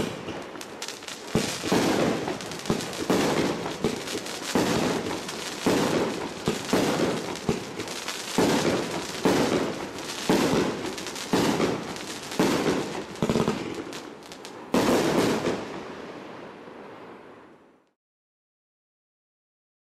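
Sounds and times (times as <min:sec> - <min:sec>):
crackling of bursting stars: 0:00.0 - 0:15.8
fireworks bangs: 0:00.0 - 0:16.2.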